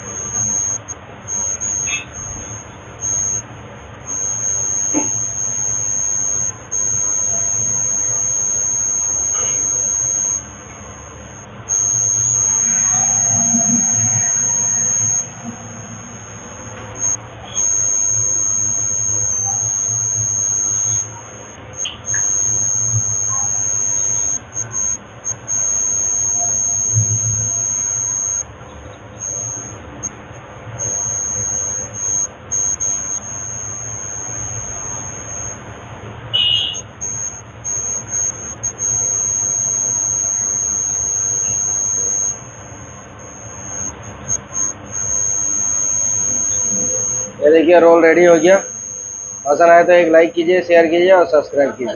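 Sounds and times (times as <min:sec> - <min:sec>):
faint low hum: 0:00.0 - 0:35.6
high-pitched electronic whine: 0:00.0 - 0:35.6, 0:36.3 - 0:51.9.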